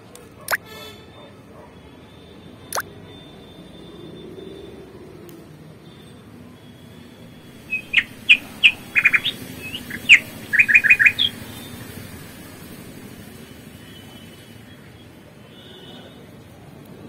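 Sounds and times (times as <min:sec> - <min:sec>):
small bird chirping: 0:07.3 - 0:13.0.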